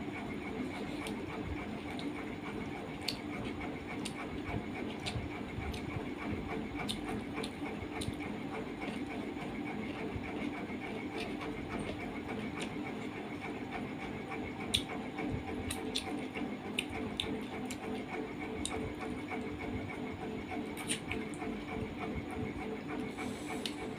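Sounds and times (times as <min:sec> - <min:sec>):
steady background hum: 0:00.0 - 0:23.9
chewing smacks: 0:03.0 - 0:06.0, 0:06.8 - 0:08.2, 0:14.6 - 0:15.0, 0:15.6 - 0:18.8, 0:20.7 - 0:21.4.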